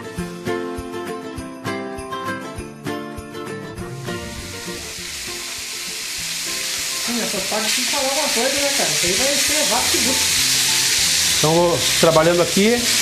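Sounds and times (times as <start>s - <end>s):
fish sizzling in a frying pan: 4.0s - 13.0s.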